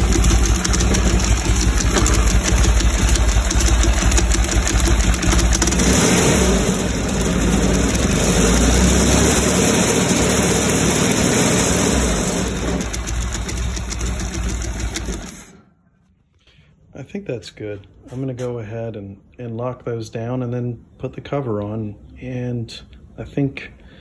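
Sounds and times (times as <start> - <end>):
motorcycle engine running: 0.0 - 15.6.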